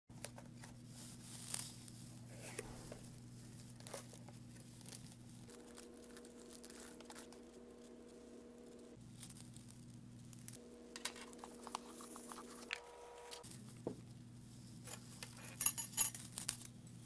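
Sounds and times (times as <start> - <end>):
steady low hum: 0.2 - 17.0
packing wrap crinkling and tearing: 3.4 - 7.9.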